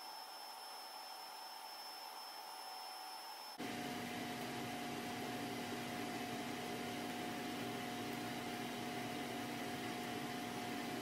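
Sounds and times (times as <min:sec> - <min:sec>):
faint steady tone: 0:00.0 - 0:03.8
fan hum: 0:03.6 - 0:11.0.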